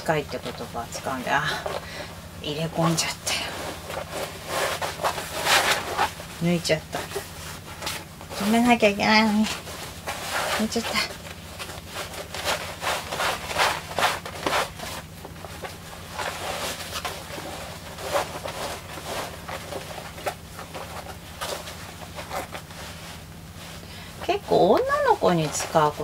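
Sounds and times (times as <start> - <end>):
cloth rustling and swishing: 0.0 - 26.0
steady low hum: 0.0 - 26.0.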